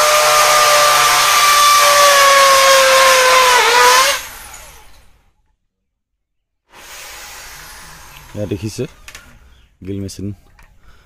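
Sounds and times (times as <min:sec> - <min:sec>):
electric drill whining: 0:00.0 - 0:05.0, 0:06.8 - 0:08.4.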